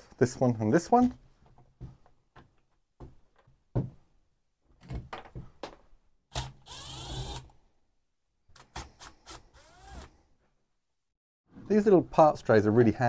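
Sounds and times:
cordless power driver whirring: 6.4s - 7.4s, 9.2s - 10.1s.

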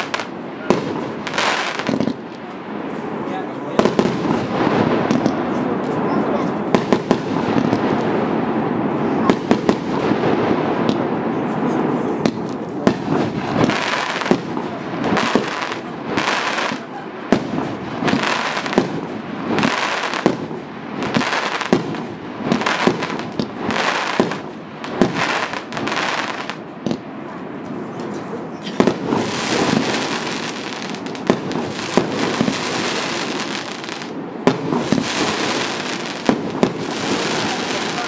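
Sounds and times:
crackling firework stars: 0.0s - 38.0s
fireworks bangs: 0.0s - 38.0s.

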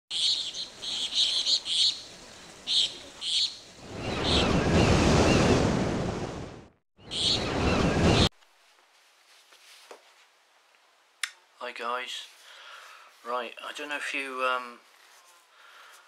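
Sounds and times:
birds chirping: 0.1s - 5.8s, 7.0s - 8.3s
wave rushing onto shore: 2.0s - 8.3s.

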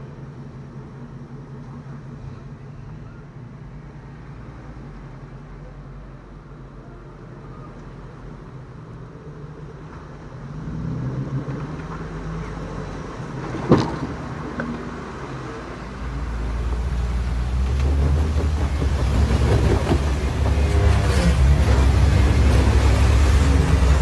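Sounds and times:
off-road vehicle engines crawling: 0.0s - 24.0s
heavy low rumble: 14.1s - 24.0s.

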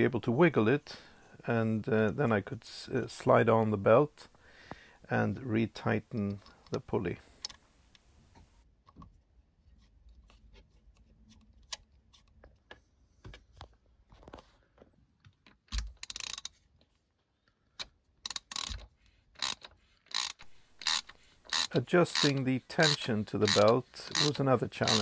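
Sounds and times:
socket wrench ratcheting: 15.7s - 16.6s, 17.8s - 25.0s.

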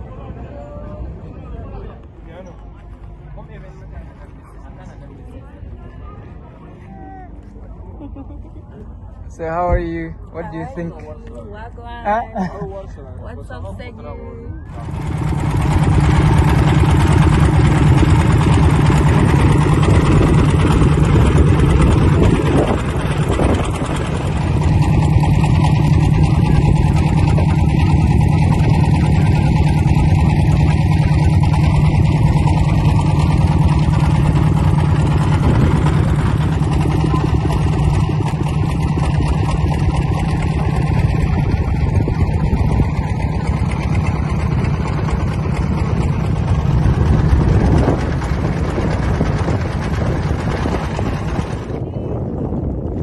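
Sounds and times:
boat engine running: 0.0s - 53.0s.

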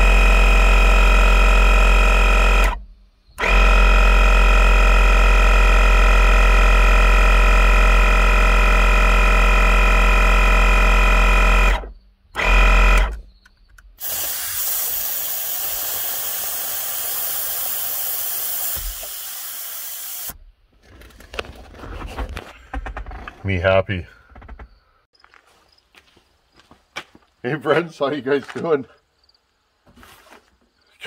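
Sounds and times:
air compressor electric hum: 0.0s - 13.2s, 14.0s - 20.4s
air hissing: 14.0s - 20.4s.

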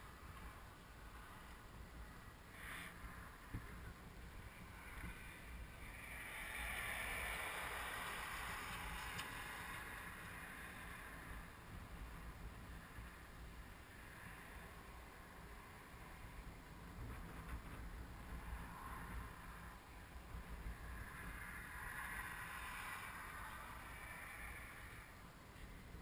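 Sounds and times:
wind rumble on microphone: 0.0s - 26.0s.

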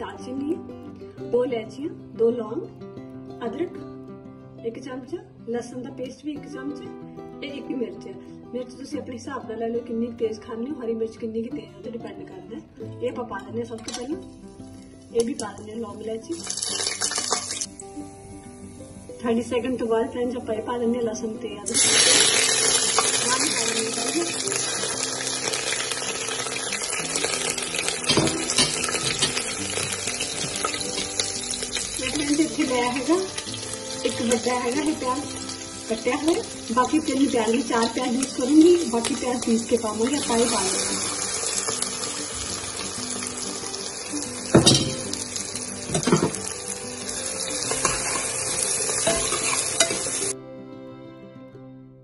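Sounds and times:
spices sizzling in hot oil: 13.8s - 19.9s, 21.7s - 50.4s
oil crackles and pops: 16.4s - 17.8s, 21.7s - 32.1s.

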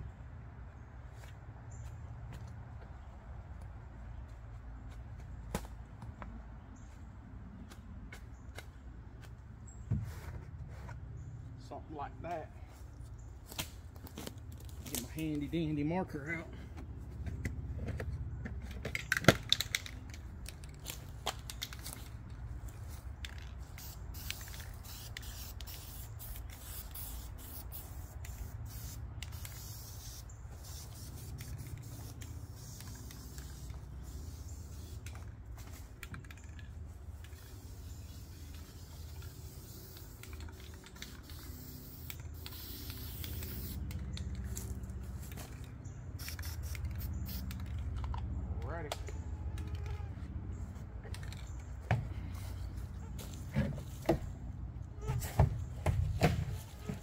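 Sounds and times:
aerosol paint spray hissing: 23.8s - 35.0s, 37.5s - 43.9s, 46.2s - 47.5s.

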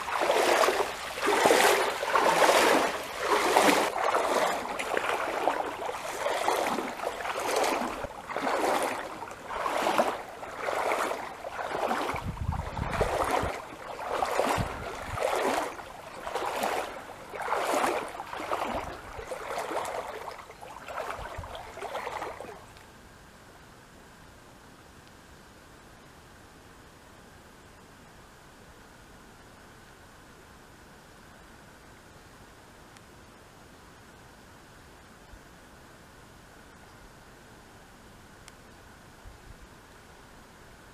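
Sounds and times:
paddle strokes in water: 0.0s - 22.8s
faint steady hiss: 0.0s - 40.9s.

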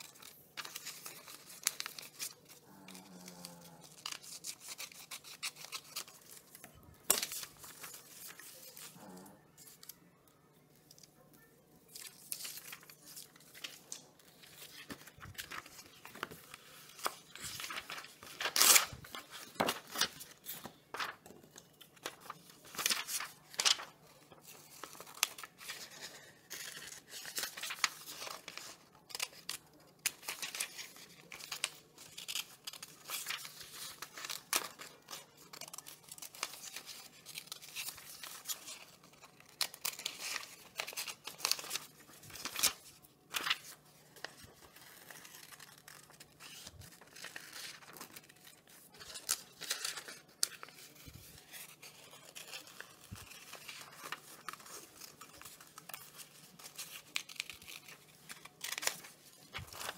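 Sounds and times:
paper rustling: 0.0s - 10.0s, 11.8s - 59.9s
scissors snipping paper: 43.4s - 59.9s.

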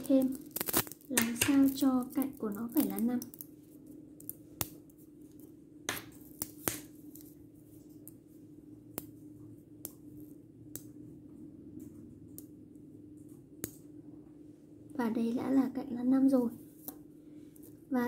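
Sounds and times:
magnetic balls clicking: 0.0s - 3.5s
faint steady hum: 0.0s - 18.0s.

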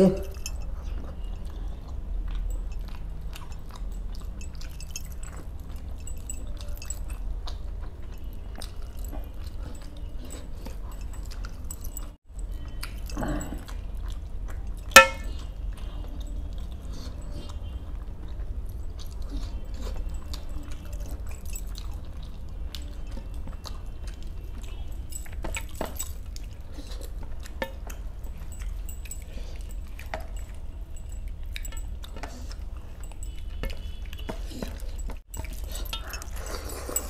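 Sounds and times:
metallic clink on steel plate: 14.9s - 15.4s.

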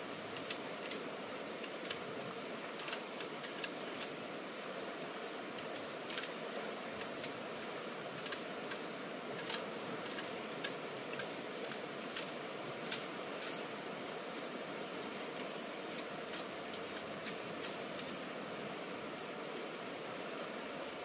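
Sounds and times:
steady hiss: 0.0s - 21.0s
sharp irregular clicks: 0.4s - 2.1s, 2.8s - 4.2s, 5.0s - 13.5s, 15.4s - 18.1s.

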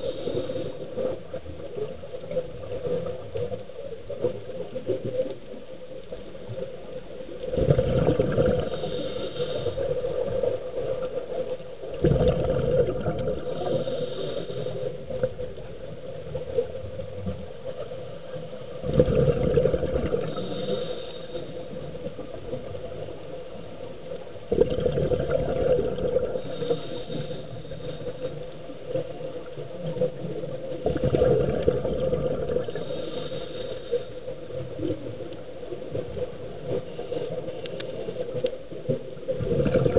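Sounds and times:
scuba regulator breathing underwater: 0.0s - 1.3s, 7.7s - 10.6s, 12.0s - 15.3s, 18.9s - 22.2s, 24.6s - 29.0s, 31.0s - 34.9s
steady underwater hum: 0.0s - 39.9s.

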